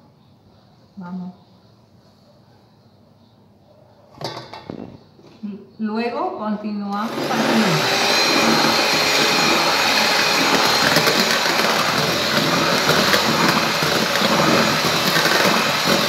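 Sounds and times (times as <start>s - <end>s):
electric hand mixer whisking batter: 7.0s - 16.0s.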